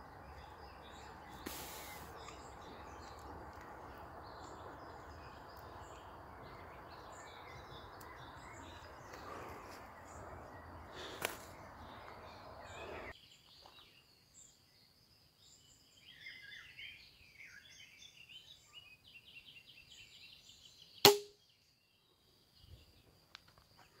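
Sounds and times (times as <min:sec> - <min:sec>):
birds chirping: 0:00.0 - 0:14.9
crossbow string snap: 0:21.0 - 0:21.4.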